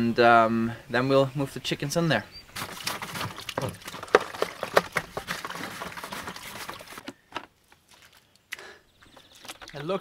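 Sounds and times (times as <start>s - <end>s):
plastic bucket knocks and scrapes: 2.6s - 7.5s.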